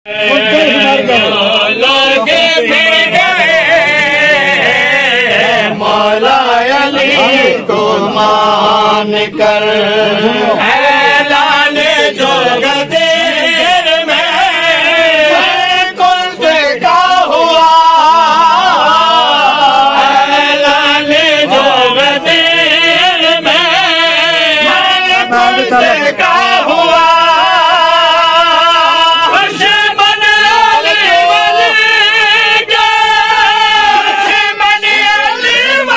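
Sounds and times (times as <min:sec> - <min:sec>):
men chanting devotional poem: 0:00.1 - 0:35.9.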